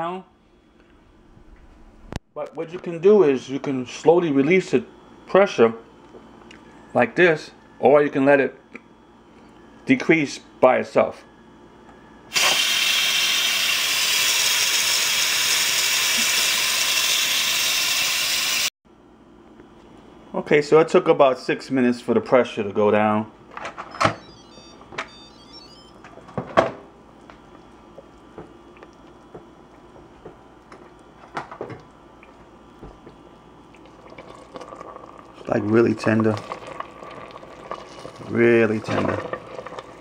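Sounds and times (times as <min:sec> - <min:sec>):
steam venting hiss: 0:12.3 - 0:18.7.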